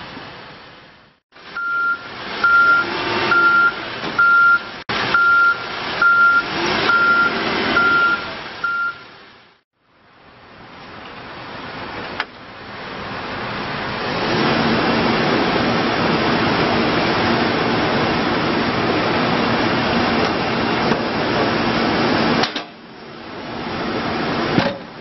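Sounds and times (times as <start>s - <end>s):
diesel engine under load: 0.0s - 9.2s, 10.4s - 25.0s.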